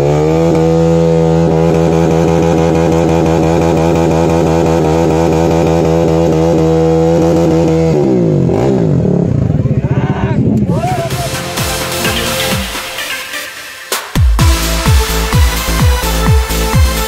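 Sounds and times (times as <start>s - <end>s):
motorcycle engine revving: 0.0s - 12.7s.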